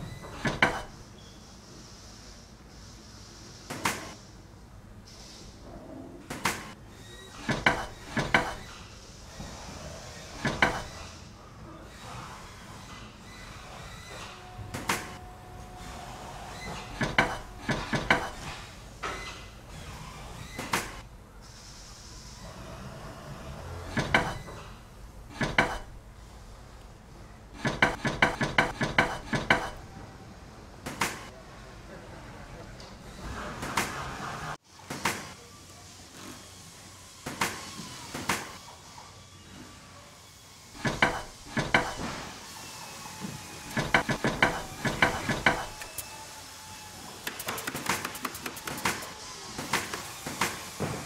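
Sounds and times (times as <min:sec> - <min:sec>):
short sharp knocks: 0:27.6 - 0:29.8, 0:40.8 - 0:42.1, 0:43.7 - 0:45.9.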